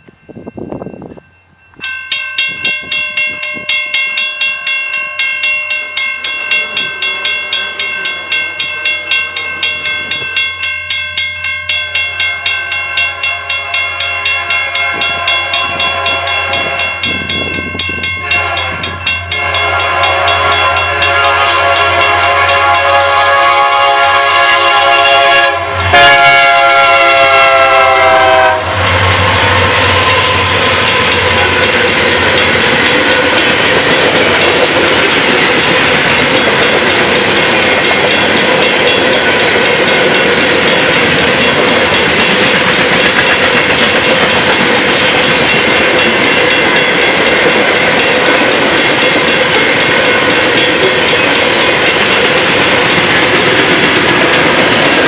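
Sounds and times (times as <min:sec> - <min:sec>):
train horn: 0:13.0 - 0:17.4, 0:18.2 - 0:31.9
wheels clattering on rails: 0:27.2 - 0:55.0.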